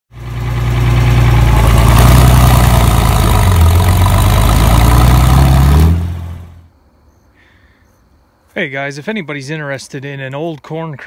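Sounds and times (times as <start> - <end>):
loud engine running: 0.1 - 6.6.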